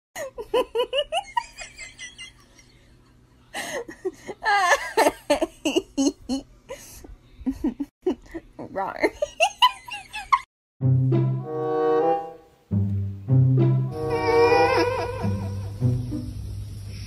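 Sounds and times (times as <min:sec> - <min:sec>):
person laughing and giggling: 0:00.2 - 0:10.5, 0:14.1 - 0:15.9.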